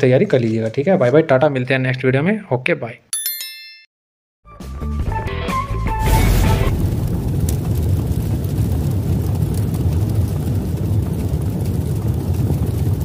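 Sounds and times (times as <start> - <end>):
steady deep rumble: 6.7 - 9.9.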